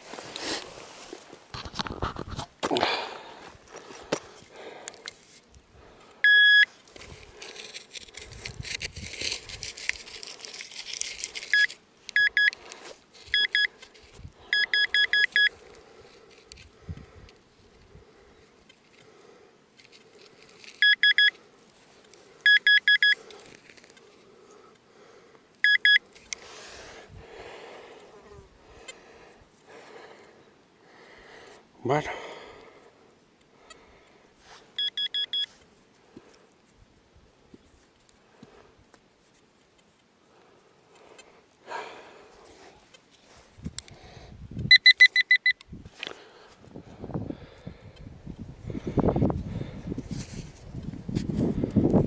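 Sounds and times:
hands scraping in loose earth: 0.0s - 6.1s, 6.7s - 14.4s, 23.2s - 24.8s, 26.0s - 30.3s, 34.4s - 34.8s, 40.8s - 44.2s, 48.4s - 52.0s
metal detector rapid beeps: 6.2s - 6.7s, 11.5s - 12.6s, 13.2s - 13.8s, 14.5s - 15.6s, 20.8s - 21.4s, 22.4s - 23.2s, 25.6s - 26.0s, 34.8s - 35.5s, 44.7s - 45.6s.

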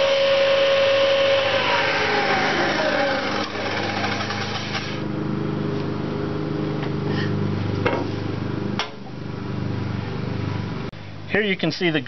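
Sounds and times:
table saw cutting wood: 0.0s - 5.1s.

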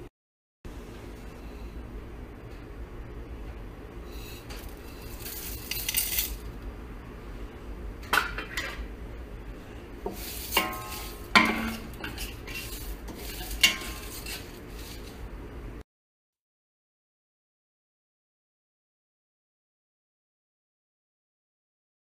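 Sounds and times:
spoon scraping metal pot: 10.0s - 15.2s
spoon knocking against metal pot: 10.6s - 12.2s.

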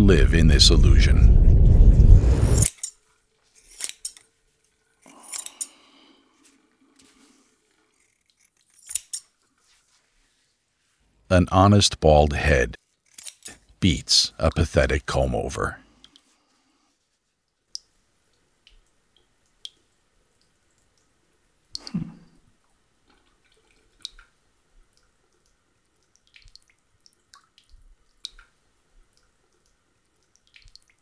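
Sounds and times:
water dripping: 17.5s - 22.0s, 22.6s - 31.0s.

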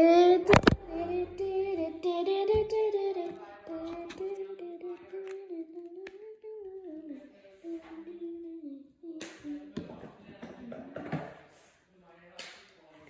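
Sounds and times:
child humming: 0.0s - 9.8s.

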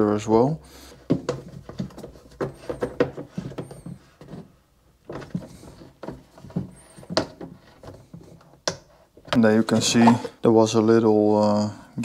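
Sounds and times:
plastic knocks and clicks: 1.1s - 9.4s.

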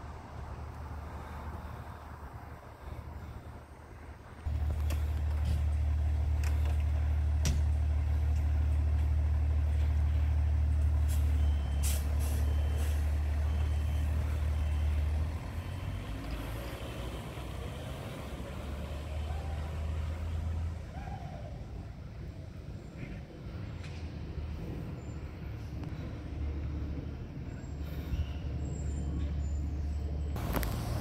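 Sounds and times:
diesel engine low drone: 0.0s - 31.0s
air brake hiss: 11.0s - 13.2s.

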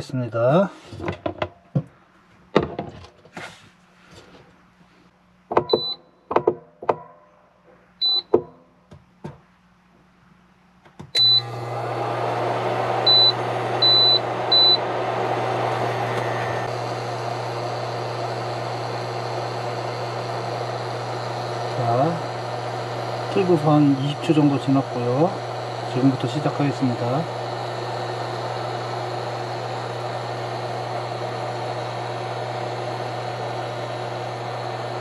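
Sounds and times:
cooling fan humming: 11.2s - 35.0s.

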